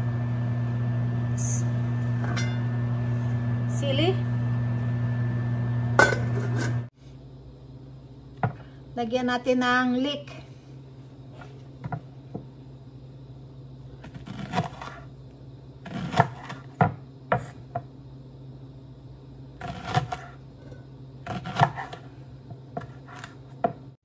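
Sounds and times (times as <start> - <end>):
steady low hum: 0.0 - 24.0
knife slicing on cutting board: 21.3 - 22.0.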